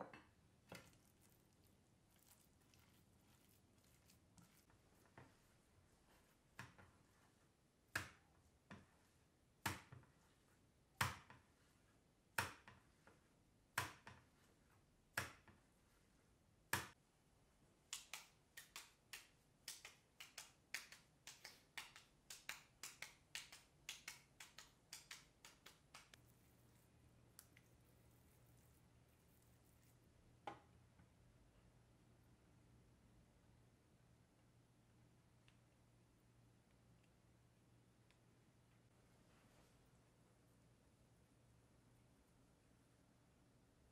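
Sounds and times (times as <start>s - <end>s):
meat mixture slapped between palms: 17.9s - 26.2s.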